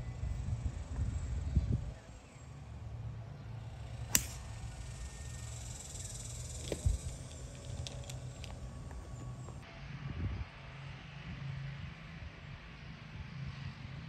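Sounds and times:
golf club striking ball: 3.7 - 9.2.

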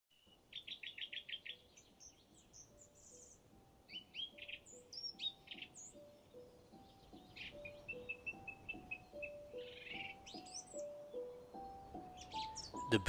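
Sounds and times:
soft music with held notes: 0.1 - 13.0
songbirds singing: 0.1 - 13.0.

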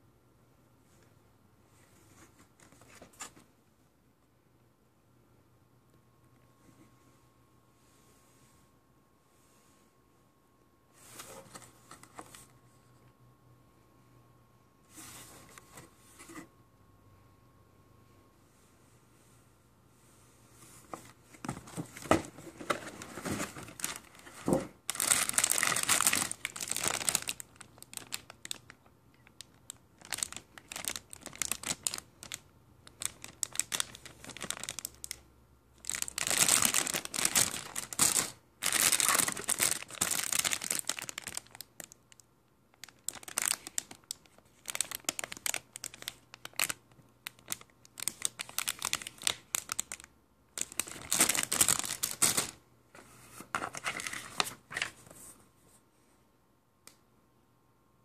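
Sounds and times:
plastic bags crinkling: 22.8 - 35.2, 35.8 - 42.2, 42.8 - 52.6.

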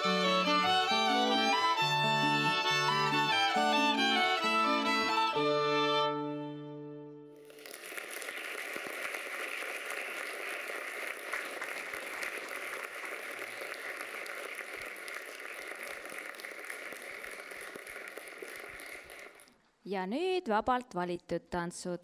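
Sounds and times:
fiddle note: 0.0 - 7.4
audience applause: 7.4 - 19.5.

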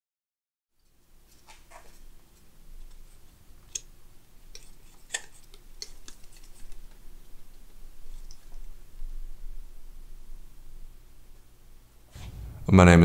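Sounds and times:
faint low hum: 0.8 - 13.0
palette knife tapping and scraping paint: 4.5 - 7.0.

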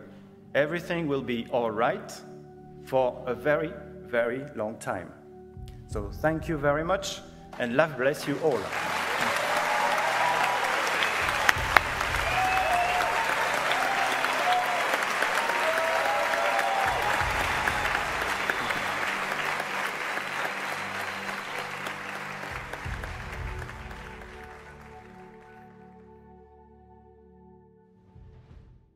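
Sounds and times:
music: 0.0 - 28.9
audience applauding: 7.6 - 26.1.

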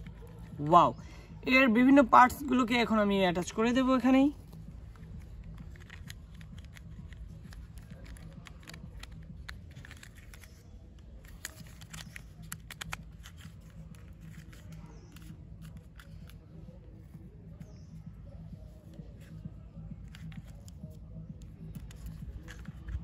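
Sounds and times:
plastic snaps: 5.4 - 16.4.

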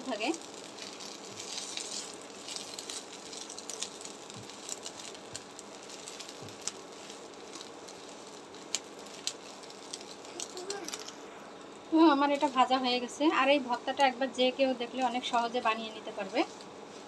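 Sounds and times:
fish frying in oil: 0.0 - 11.0.

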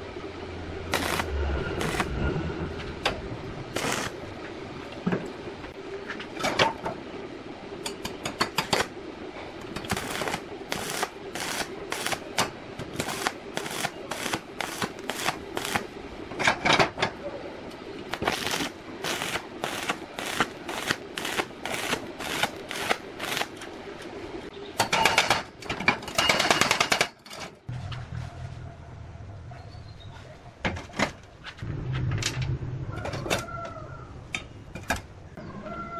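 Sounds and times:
steady hum: 0.0 - 24.7.

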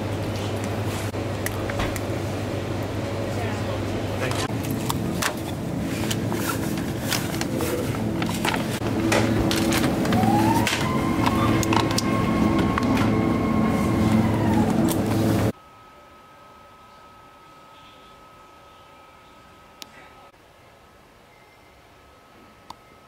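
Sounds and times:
refrigerator hum: 0.0 - 20.3
plastic basket and items rattling: 4.5 - 12.0
rising tone: 8.8 - 15.6.

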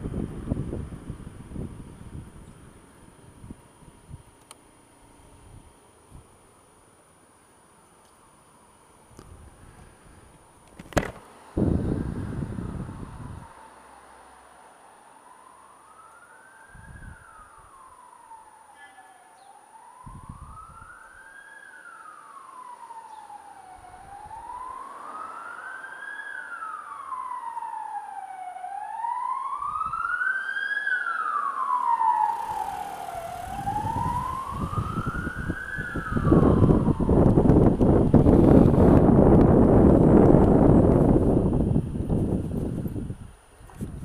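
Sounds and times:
wind buffeting microphone: 0.0 - 4.4, 9.1 - 13.8, 16.6 - 18.1, 20.0 - 21.2, 23.6 - 26.1, 27.1 - 30.4, 31.6 - 44.0
emergency siren wailing: 11.4 - 43.2.

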